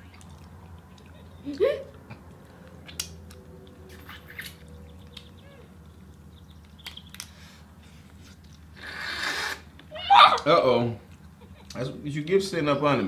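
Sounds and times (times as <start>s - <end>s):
low steady hum: 0.0s - 8.9s.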